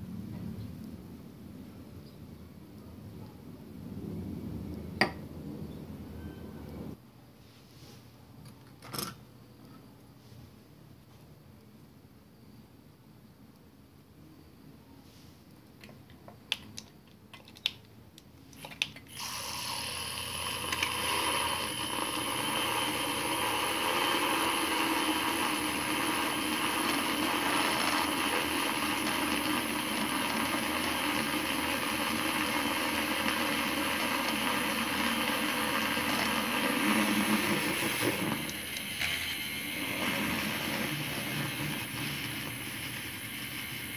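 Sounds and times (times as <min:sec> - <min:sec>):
milk frother motor whisking: 0:19.1 - 0:43.9.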